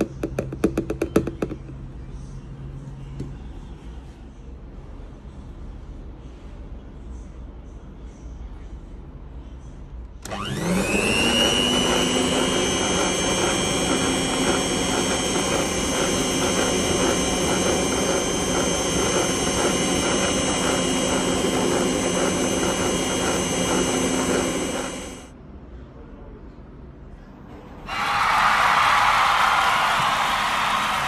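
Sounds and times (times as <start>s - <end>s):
electric mixer whining: 10.2s - 25.3s, 27.9s - 31.0s.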